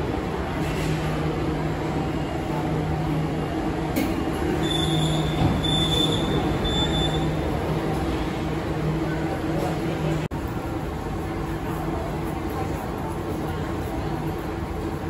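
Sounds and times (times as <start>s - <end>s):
thin high squeal of train: 4.4s - 7.5s.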